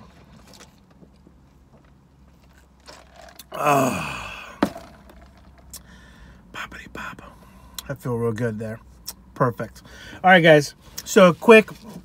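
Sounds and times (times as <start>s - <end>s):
man burping: 3.4s - 5.2s.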